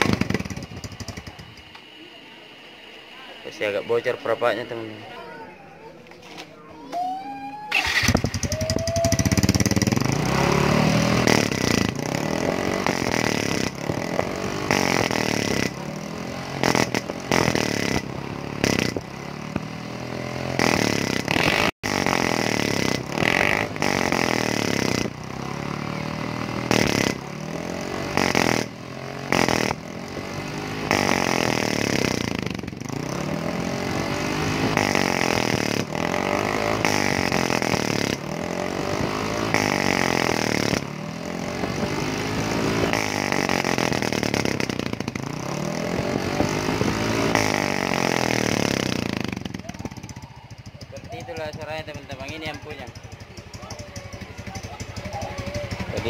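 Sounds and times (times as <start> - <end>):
scooter engine revving: 0.0 - 5.4, 7.5 - 56.0
man speaking: 3.3 - 6.0.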